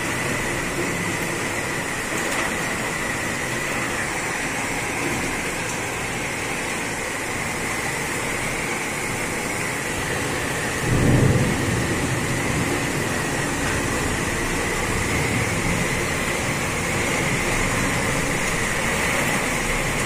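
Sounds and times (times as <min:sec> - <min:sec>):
heavy rain pouring: 0:00.0 - 0:20.0
low thunder rumble: 0:10.2 - 0:18.8.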